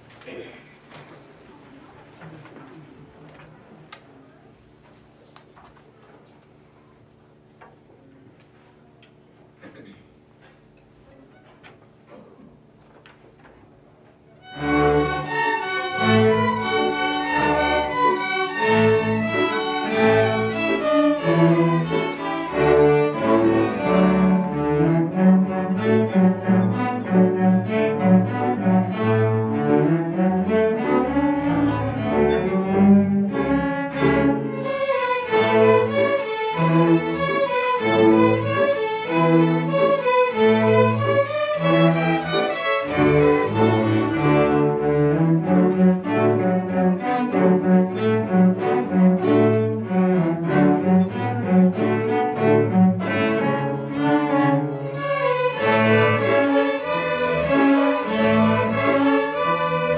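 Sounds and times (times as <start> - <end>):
string orchestra playing: 14.4 - 59.9.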